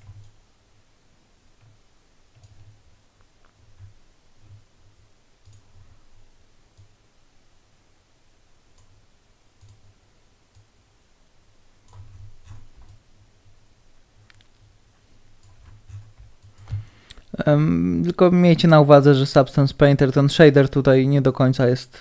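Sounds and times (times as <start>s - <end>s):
computer mouse clicks: 1.6s - 4.7s, 5.4s - 5.8s, 8.7s - 9.0s, 9.6s - 10.7s, 11.8s - 13.1s, 14.2s - 14.8s, 15.4s - 17.3s.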